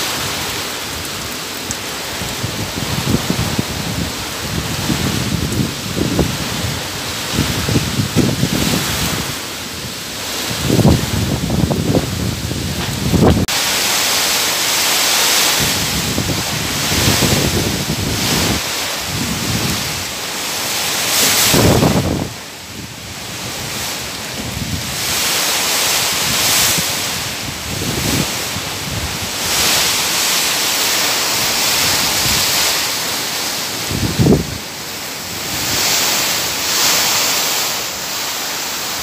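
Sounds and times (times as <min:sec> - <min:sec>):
wind buffeting microphone: 0:00.0 - 0:13.6, 0:15.3 - 0:39.0
heavy rain: 0:00.0 - 0:39.0
wind gusting: 0:00.0 - 0:39.0.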